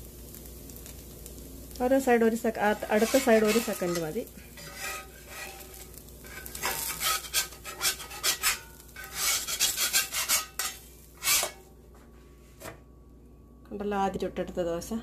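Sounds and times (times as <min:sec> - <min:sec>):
metal spatula scraping skillet: 0:02.6 - 0:11.7.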